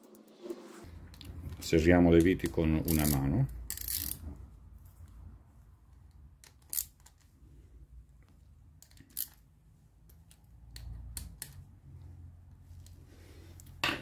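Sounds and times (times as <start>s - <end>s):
ratchet wrench clicks: 2.8s - 4.2s.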